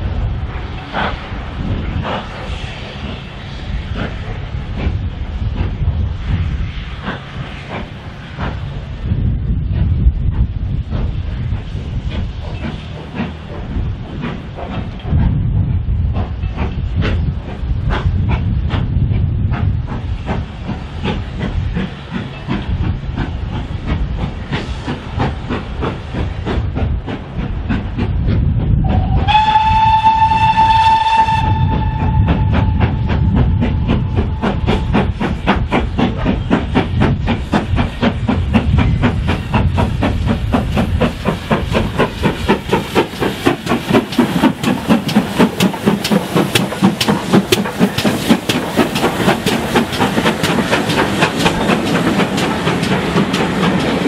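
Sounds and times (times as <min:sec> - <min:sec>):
steam locomotive exhaust beats: 0:00.0 - 0:54.0
wheels clicking over rail joints: 0:19.6 - 0:54.0
steam whistle blast: 0:29.0 - 0:34.8.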